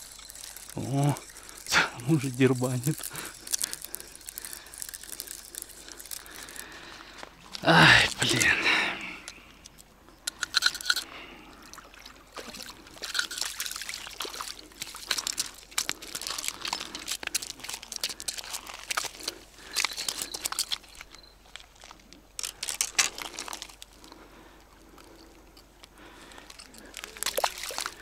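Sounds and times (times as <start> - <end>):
footsteps crunching on pebbles: 0.0 - 9.0, 14.2 - 24.1
stones clattering and scraping: 0.0 - 11.1, 12.4 - 24.2, 26.3 - 28.0.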